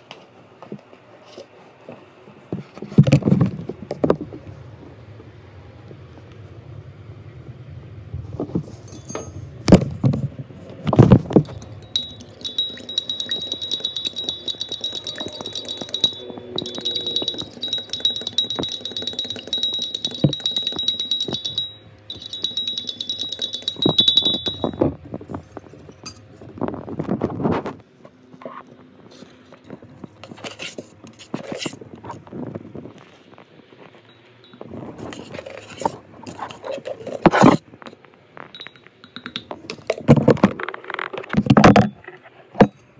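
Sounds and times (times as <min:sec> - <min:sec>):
fork clinking against mug: 0:11.4 - 0:24.9.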